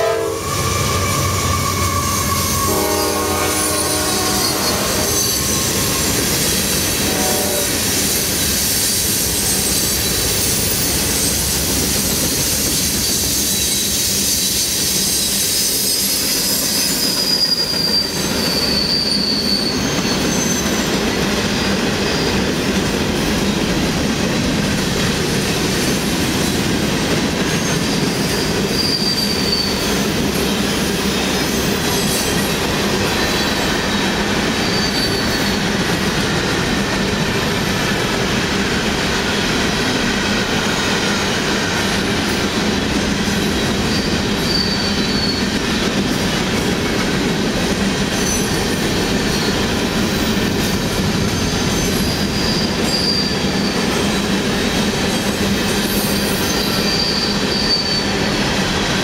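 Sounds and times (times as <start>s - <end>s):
high-pitched wheel squeals: 0.0s - 6.5s, 12.8s - 21.0s, 27.6s - 30.0s, 34.6s - 35.7s, 43.8s - 45.6s, 51.3s - 54.3s, 55.9s - 58.4s
train wheels rumbling on rail: 0.0s - 59.0s.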